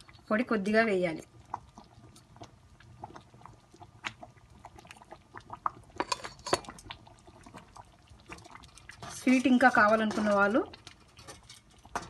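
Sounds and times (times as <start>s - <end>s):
thick pudding simmering: 0.0s - 12.0s
spoon stirring in steel pan: 6.0s - 6.8s, 8.2s - 12.0s.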